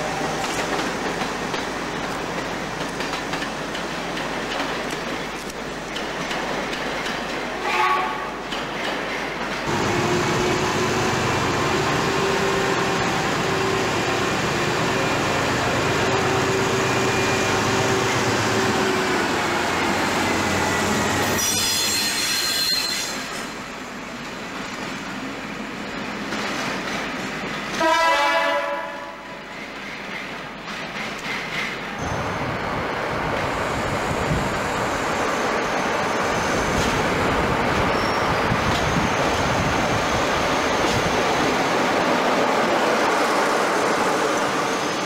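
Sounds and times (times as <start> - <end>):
diesel locomotive passing: 0.0 - 45.0
train passing with rail noise: 0.0 - 45.0
locomotive horn: 7.6 - 8.4, 27.7 - 29.2
high-pitched wheel squeal: 21.2 - 23.3.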